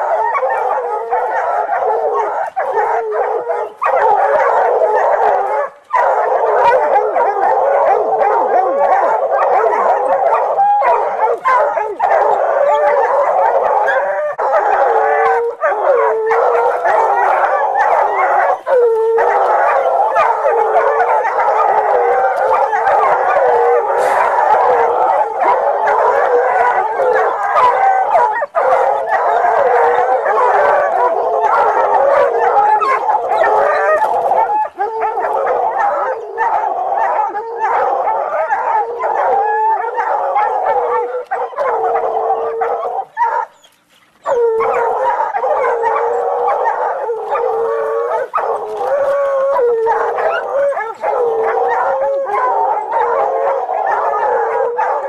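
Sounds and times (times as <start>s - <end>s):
hounds baying and howling: 0.0s - 55.0s.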